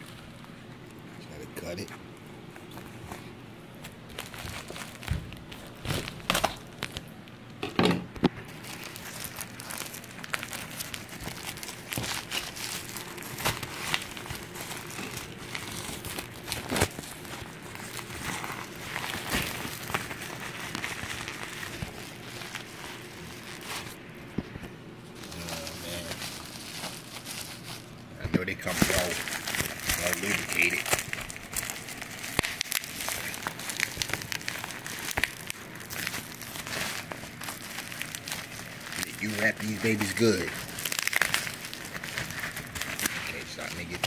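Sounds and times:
plastic wrap crumpling and tearing: 0:00.0 - 0:07.5, 0:08.2 - 0:44.0.

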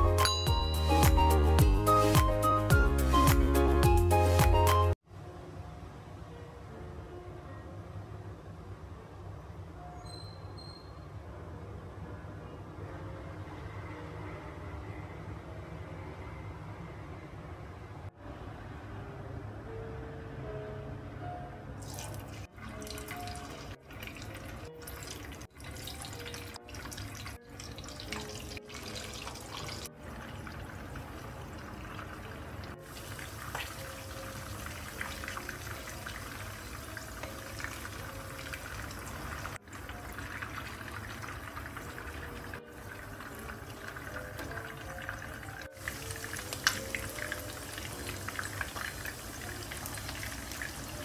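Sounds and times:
soft background music: 0:00.0 - 0:10.1, 0:11.0 - 0:51.0
fish sizzling in hot oil: 0:24.6 - 0:51.0.

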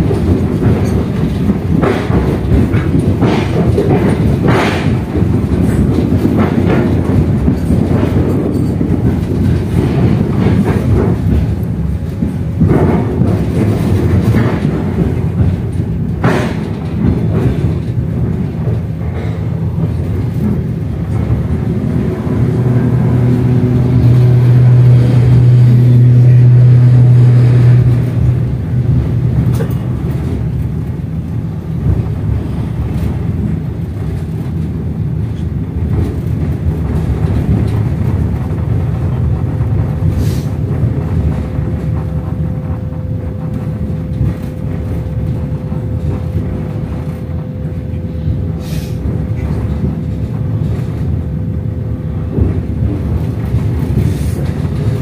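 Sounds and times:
loud low hum: 0:00.0 - 0:34.9, 0:35.7 - 0:55.0
train wheels rumbling on rails: 0:00.0 - 0:55.0.

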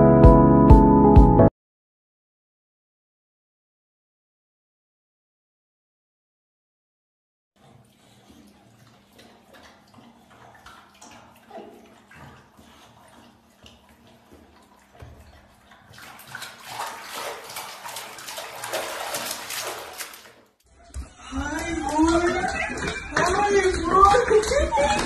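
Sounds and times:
water splashing in plastic tub: 0:07.6 - 0:25.0.

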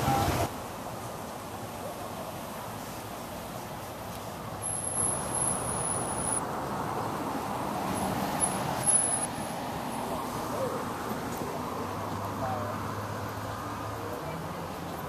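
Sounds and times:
vehicle running on road: 0:00.0 - 0:15.0.

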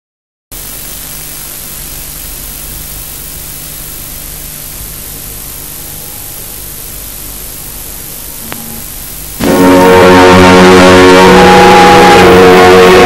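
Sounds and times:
film soundtrack hiss: 0:00.5 - 0:13.0
low hum: 0:04.7 - 0:13.0.

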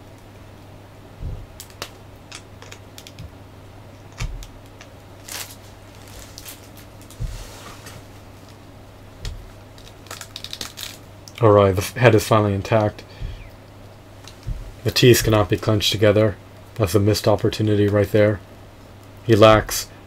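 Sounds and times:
low steady hum: 0:00.0 - 0:20.0
dull thumps: 0:01.2 - 0:01.8, 0:04.1 - 0:11.1, 0:12.7 - 0:16.2, 0:19.4 - 0:19.8
plastic parts clicking and tapping: 0:01.6 - 0:03.4.

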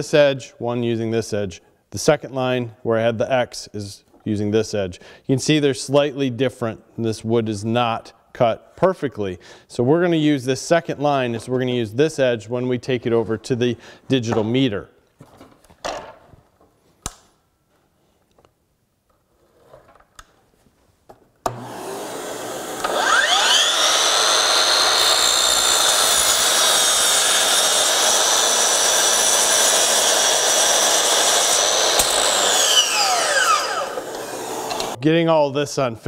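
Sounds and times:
miter saw motor whining: 0:21.5 - 0:35.0
saw blade cutting board: 0:21.5 - 0:35.0.

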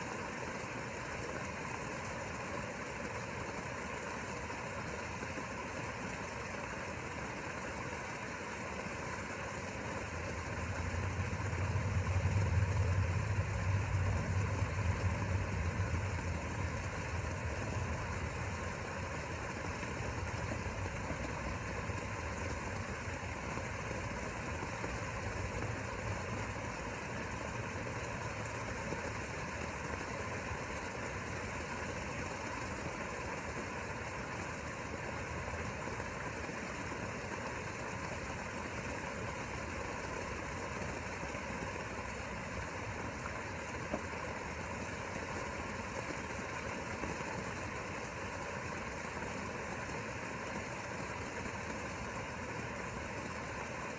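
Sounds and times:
steady mechanical hum: 0:00.0 - 0:53.9
low engine rumble: 0:09.8 - 0:28.8.

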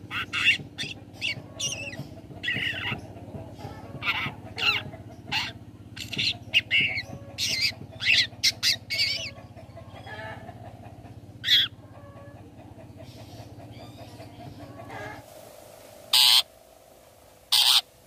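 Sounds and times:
shrike chattering calls: 0:16.1 - 0:16.5, 0:17.5 - 0:18.0.

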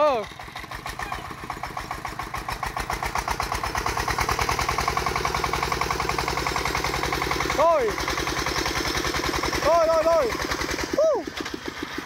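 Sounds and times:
diesel engine putter: 0:00.0 - 0:12.0.

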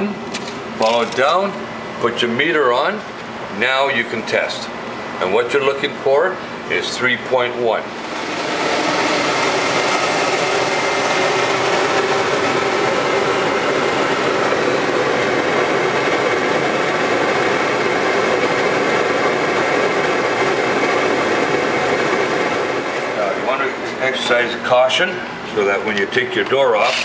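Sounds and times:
boiler blowers rushing air: 0:00.0 - 0:27.0.

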